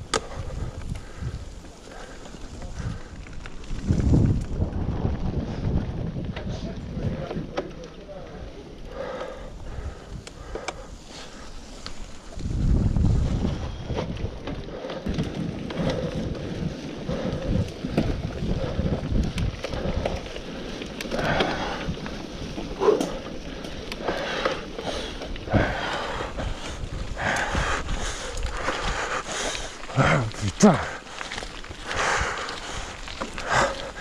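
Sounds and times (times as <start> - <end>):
tyres on dirt trail: 0.0 - 34.0
wind buffeting microphone: 0.0 - 34.0
bike rattling and knocking: 12.4 - 34.0.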